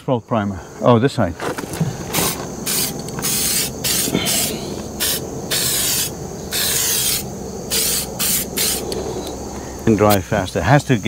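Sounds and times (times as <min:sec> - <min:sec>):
aerosol can spraying: 0:02.2 - 0:09.0.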